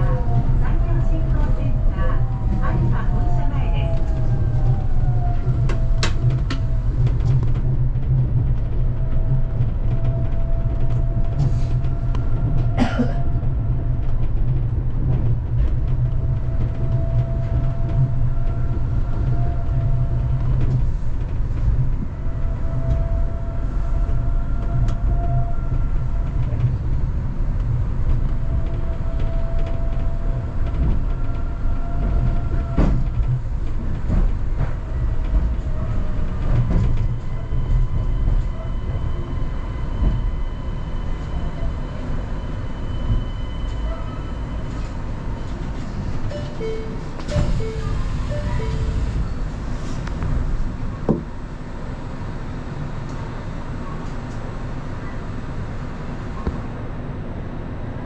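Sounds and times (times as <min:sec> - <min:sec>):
train running low rumble: 0:00.0 - 0:58.0.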